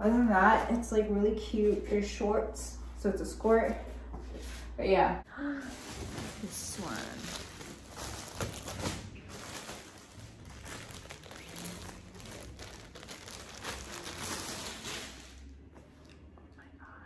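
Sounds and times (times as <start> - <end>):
plastic packaging crinkling: 5.6 - 15.5.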